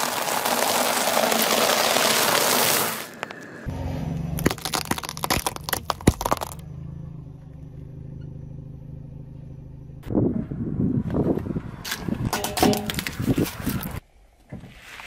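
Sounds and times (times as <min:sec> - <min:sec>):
loud crackling noise: 0:00.0 - 0:03.6
car engine running: 0:03.6 - 0:10.2
walnut shells cracking: 0:04.4 - 0:06.6.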